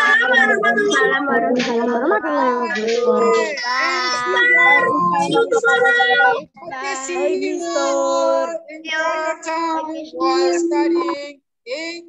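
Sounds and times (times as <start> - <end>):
children singing goodbyes: 0.0 - 12.0.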